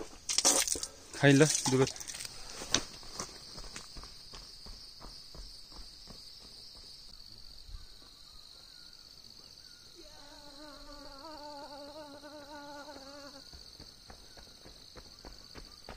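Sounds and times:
insects shrilling: 0:09.6 - 0:13.8.

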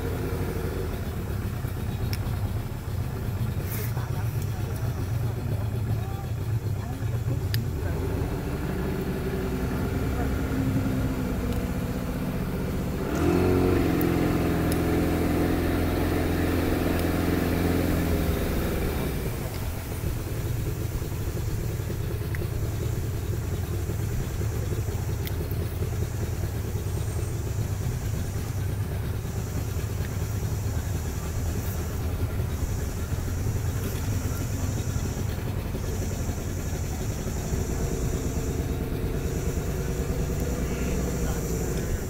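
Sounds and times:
outboard engine running: 0:00.0 - 0:42.0.

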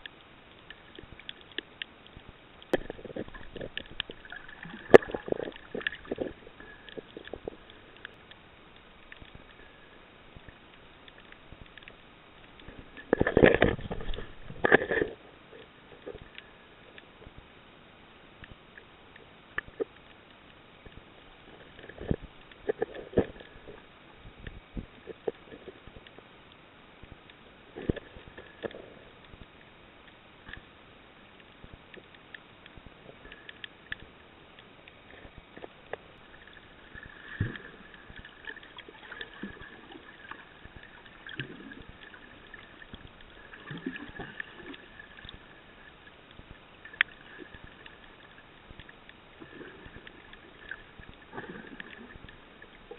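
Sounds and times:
faint high hum: 0:00.0 - 0:52.9
underwater clicks and knocks: 0:00.7 - 0:08.4, 0:10.4 - 0:15.2.

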